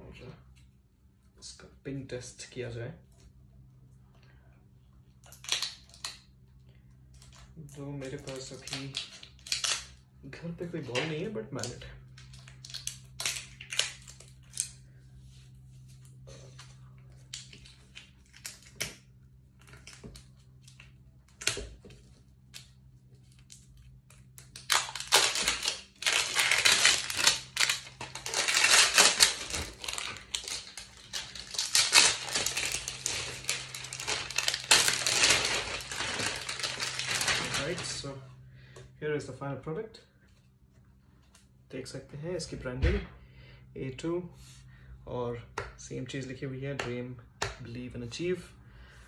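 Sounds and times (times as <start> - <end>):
plastic wrap crinkling and tearing: 7.2 - 10.0, 12.1 - 14.8, 23.3 - 38.1.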